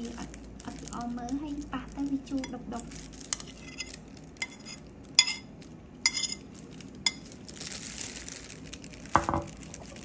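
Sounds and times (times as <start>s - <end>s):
metal spoon clinking: 3.3s - 6.4s
spoon scraping against mesh: 3.3s - 6.4s.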